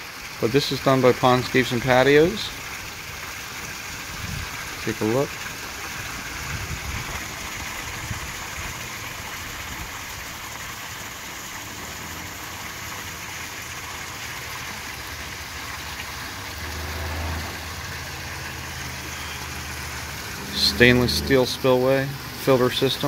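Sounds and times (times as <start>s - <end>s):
water pouring into pond: 0.0s - 23.0s
low hum: 16.9s - 22.5s.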